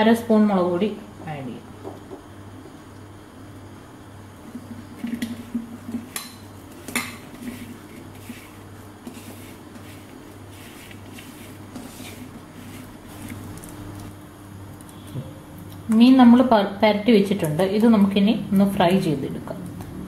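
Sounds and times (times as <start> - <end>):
steady low hum: 0.0 - 20.0
dry rustling and scraping: 6.7 - 14.1.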